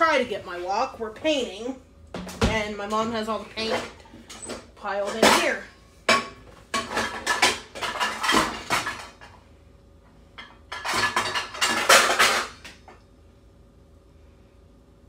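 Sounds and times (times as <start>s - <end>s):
pots and pans clattering: 2.2s - 9.4s, 10.4s - 13.0s.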